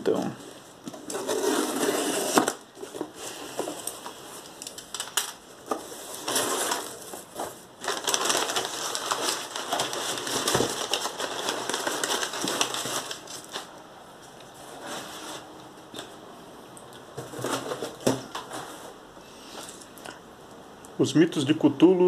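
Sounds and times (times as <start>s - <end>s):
paper and cardboard rustling: 0.9s - 13.7s, 14.5s - 16.1s, 17.2s - 19.0s
cardboard clicks and knocks: 17.2s - 18.8s.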